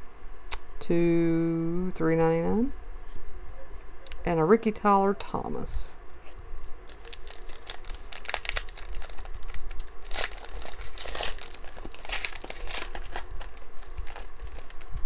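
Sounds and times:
foil wrapper crinkling and tearing: 6.6s - 15.0s.

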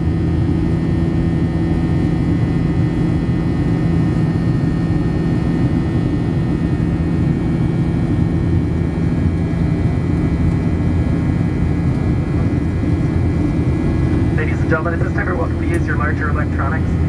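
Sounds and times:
jet engine cabin rumble: 0.0s - 17.0s.

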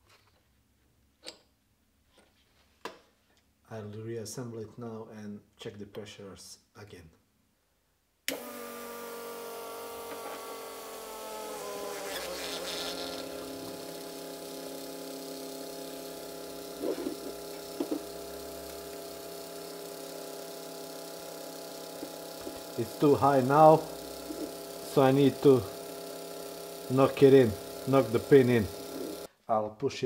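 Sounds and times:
fuel pump buzzing whine: 8.3s - 29.3s.

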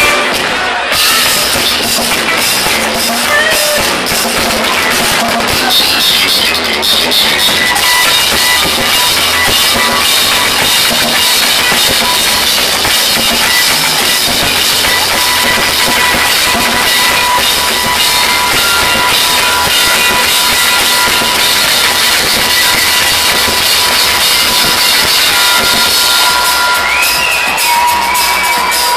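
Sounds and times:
drum kit beat: 0.0s - 28.9s
live rock band playing: 0.0s - 28.9s.

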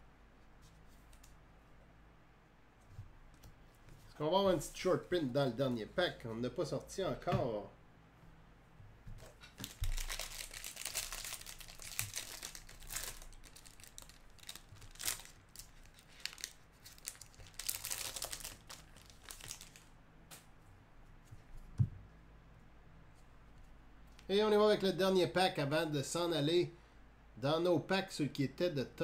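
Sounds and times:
card pack wrapper crinkling: 9.5s - 19.9s.

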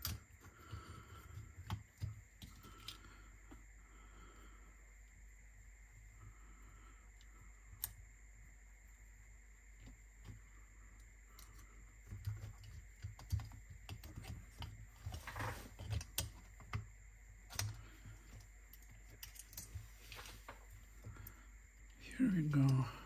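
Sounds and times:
light clicks of small parts and tools: 17.5s - 21.4s.

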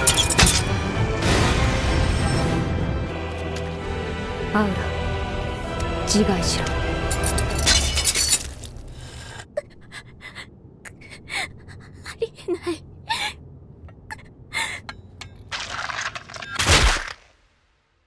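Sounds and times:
woman gasping and panting: 9.1s - 13.4s, 14.1s - 14.9s
woman whimpering cries: 9.6s - 13.4s, 14.1s - 14.9s.

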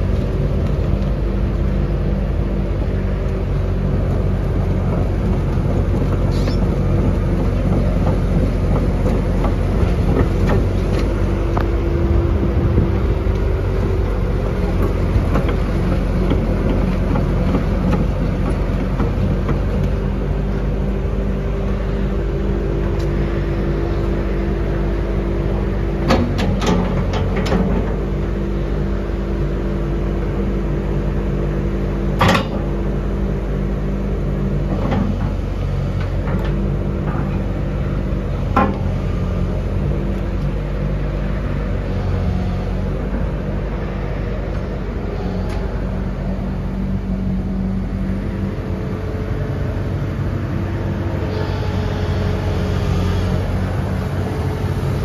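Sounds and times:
excavator diesel engine running: 0.0s - 55.0s
hydraulic hum: 4.5s - 55.0s
metal clanks of excavator bucket: 32.2s - 32.7s.

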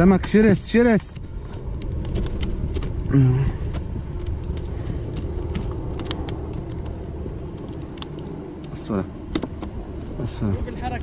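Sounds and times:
wind and water rumble on microphone: 0.0s - 11.0s
small clicks and taps: 3.7s - 9.8s.

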